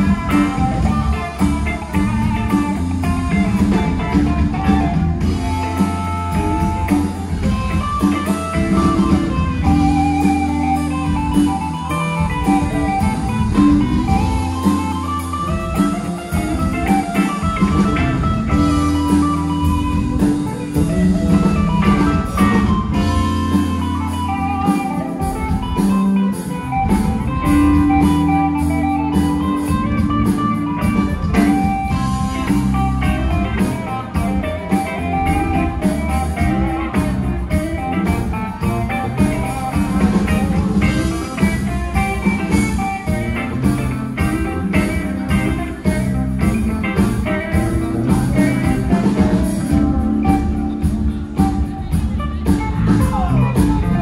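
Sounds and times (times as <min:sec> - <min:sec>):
drums with cymbals: 0:00.0 - 0:54.0
electric guitar lead: 0:00.0 - 0:54.0
live blues-rock band: 0:00.0 - 0:54.0.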